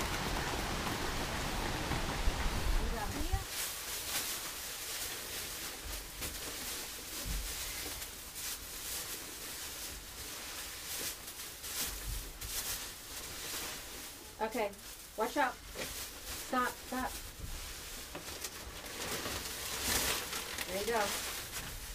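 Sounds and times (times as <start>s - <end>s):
wood shavings rustling: 0.0s - 21.9s.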